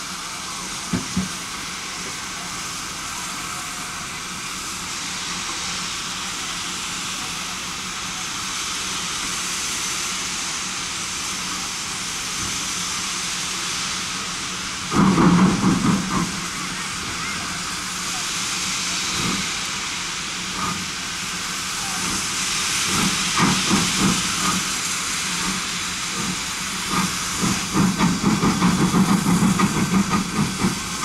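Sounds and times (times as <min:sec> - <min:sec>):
steam hissing from locomotive: 0:00.0 - 0:31.0.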